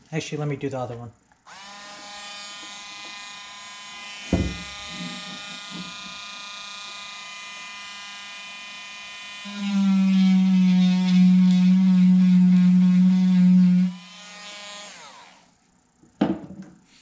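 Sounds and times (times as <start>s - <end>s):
rotary tool buzzing in wood: 1.4s - 15.6s
rotary tool whining: 1.5s - 15.5s
knock: 4.3s - 6.0s, 16.2s - 16.7s.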